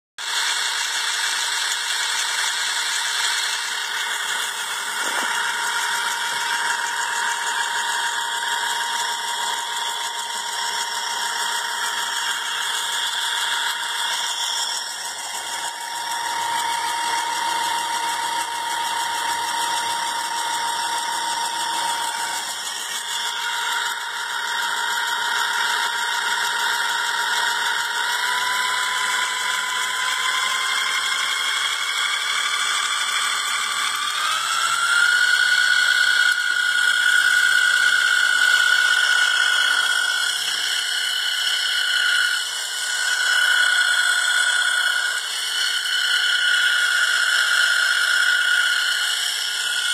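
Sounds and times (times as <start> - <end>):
small electric motor whirring: 0.2 - 49.9
steady whine: 0.3 - 49.9.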